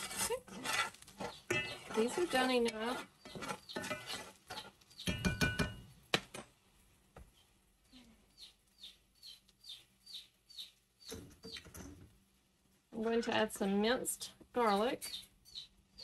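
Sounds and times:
spoon scraping onions in skillet: 0.0 - 6.0
bird chirping: 3.2 - 5.5, 8.3 - 12.0, 14.6 - 16.0.

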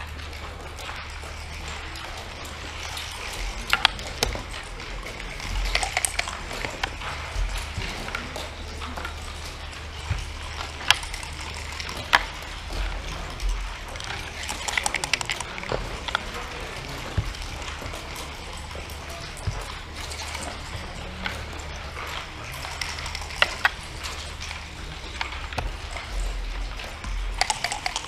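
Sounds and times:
checkers clicking on board: 0.0 - 28.0
low hum: 0.0 - 28.0
dice rattling on wooden board: 1.0 - 28.0.

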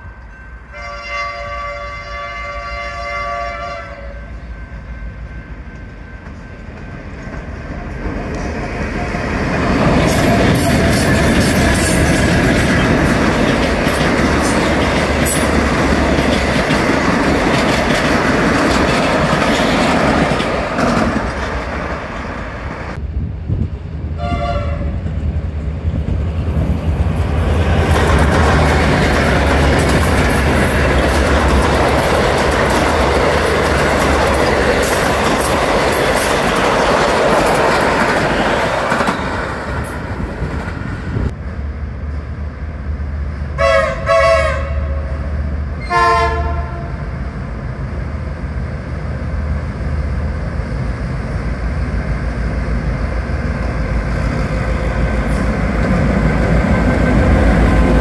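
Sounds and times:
distant train horn: 0.0 - 6.4, 24.2 - 25.0, 43.5 - 47.1
diesel locomotive engines: 0.0 - 58.0
train wheels clacking: 5.7 - 23.0, 25.0 - 40.9.

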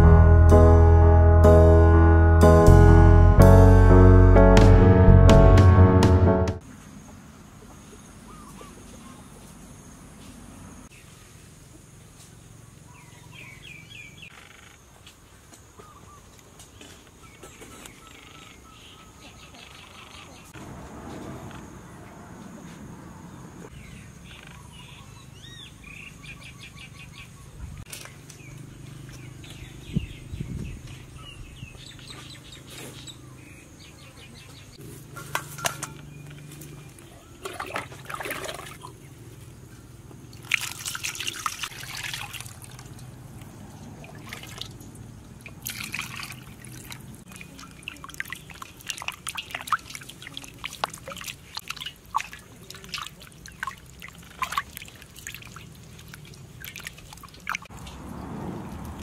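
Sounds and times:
water splashing in metal bowl: 37.4 - 39.0, 40.3 - 57.8.

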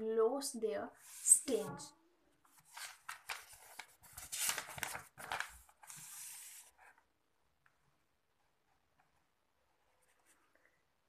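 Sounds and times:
book pages turning: 2.4 - 7.0.

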